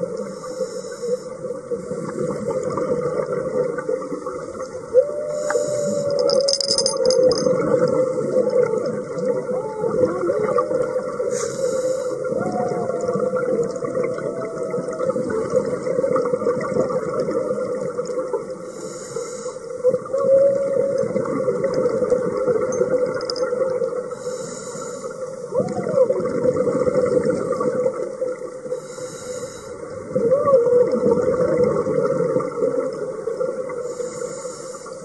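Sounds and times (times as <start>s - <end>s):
regulator inhalation hiss: 0.2s - 1.4s, 5.4s - 6.2s, 11.3s - 12.3s, 18.7s - 19.8s, 24.1s - 25.4s, 28.7s - 29.8s, 33.8s - 35.0s
gurgling exhaled bubbles: 1.4s - 18.8s, 19.7s - 24.2s, 25.4s - 29.0s, 29.7s - 34.4s.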